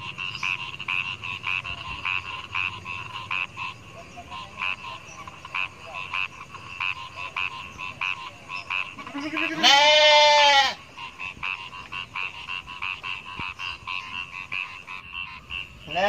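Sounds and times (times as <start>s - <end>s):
frogs croaking: 0.0s - 16.0s
sheep bleating: 9.1s - 10.8s.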